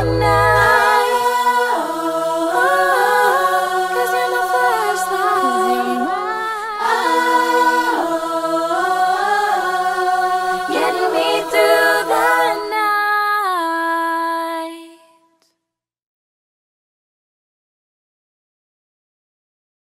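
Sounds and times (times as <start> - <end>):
women singing a cappella harmony: 0.0 - 15.4.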